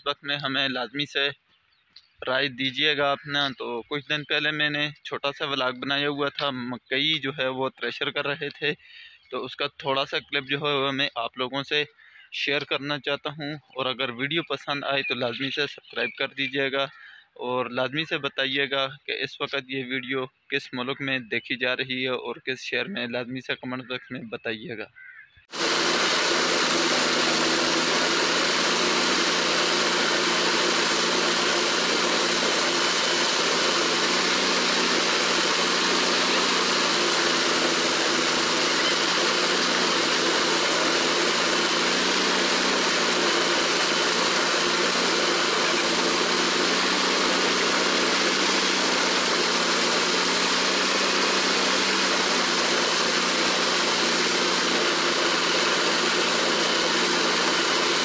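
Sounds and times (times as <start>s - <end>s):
thresher mechanical drone: 25.5s - 58.0s.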